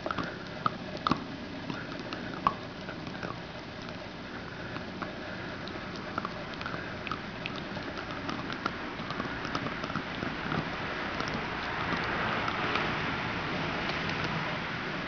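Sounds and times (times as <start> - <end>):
dog gnawing bone: 0.0 - 15.0.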